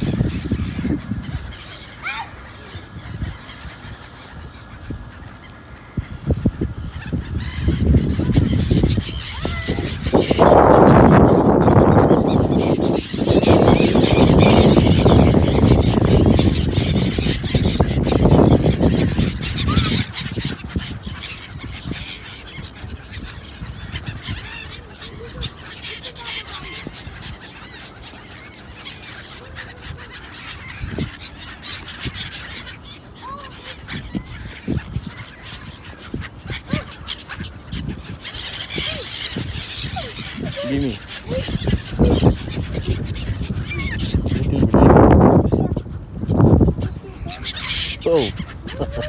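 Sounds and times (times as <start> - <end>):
gulls calling: 0.0 - 49.0.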